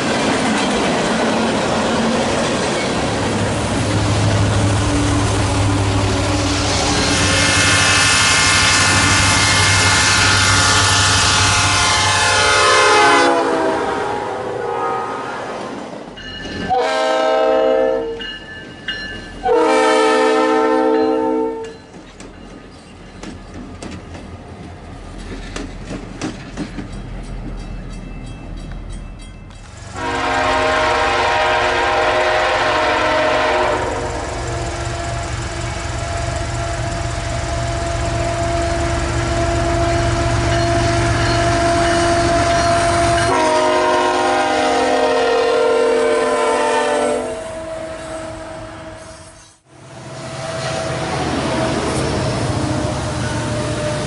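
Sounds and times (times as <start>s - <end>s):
locomotive horn: 4.0s - 15.7s, 16.7s - 18.2s, 19.4s - 21.8s, 29.9s - 54.0s.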